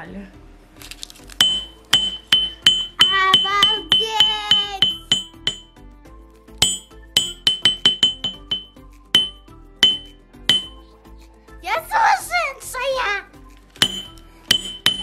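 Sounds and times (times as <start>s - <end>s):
small hammer pinging on metal: 1.4s - 5.7s, 6.6s - 10.8s, 13.8s - 15.0s.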